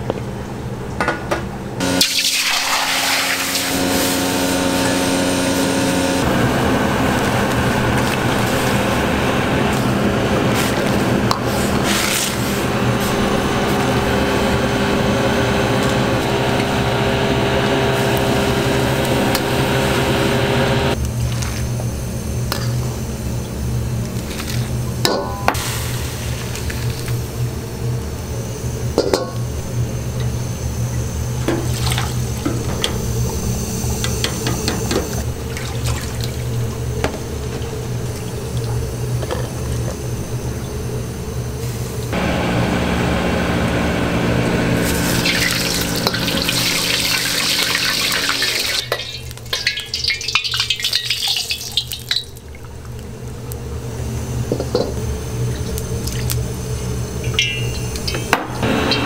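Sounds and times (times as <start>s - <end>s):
water tap running: 1.8s - 21.4s, 31.0s - 40.8s, 44.7s - 53.3s, 54.4s - 59.0s
oil pouring and crackling: 2.0s - 20.0s, 20.8s - 27.5s, 31.0s - 34.2s, 44.6s - 58.7s
low steady hum: 3.6s - 59.0s
metal strainer and wok clinking: 57.2s - 58.3s.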